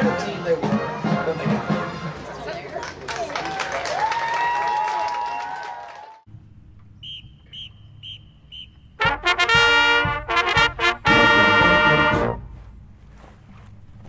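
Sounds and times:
brass band playing chords: 0.0s - 2.7s, 8.0s - 12.8s.

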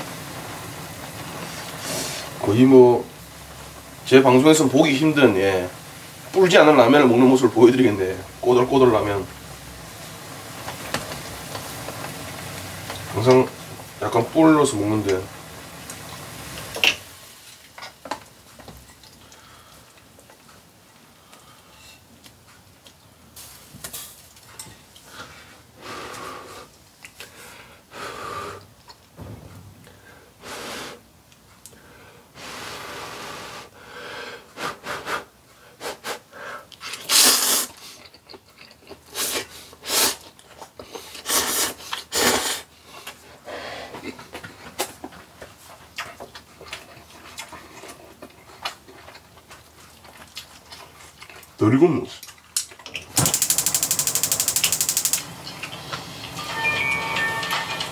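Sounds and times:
man slurping noodles: 36.9s - 37.8s.

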